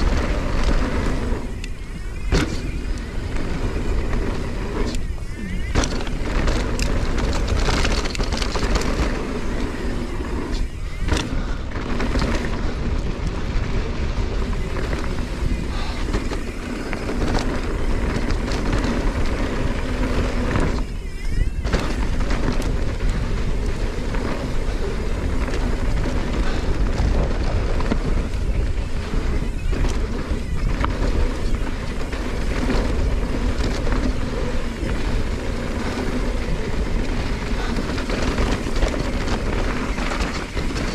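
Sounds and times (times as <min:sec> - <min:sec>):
bike rattling and clicking: 0:00.0 - 0:40.9
tyres rolling over dirt: 0:00.0 - 0:40.9
wind buffeting microphone: 0:00.0 - 0:40.9.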